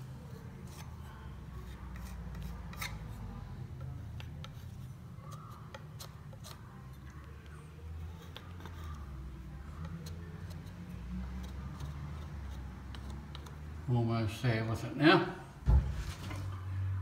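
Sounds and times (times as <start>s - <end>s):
light scrapes and clicks: 0.3s - 13.7s
plastering tool scraping cement: 9.8s - 13.6s.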